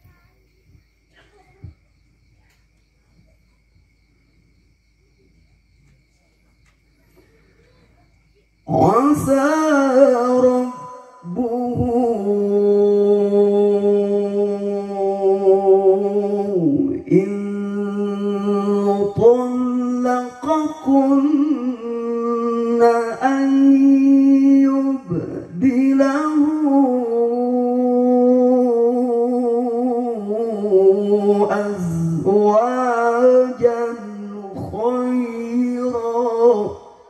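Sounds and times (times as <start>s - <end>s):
man reciting melodically over sound system: 8.4s - 37.0s.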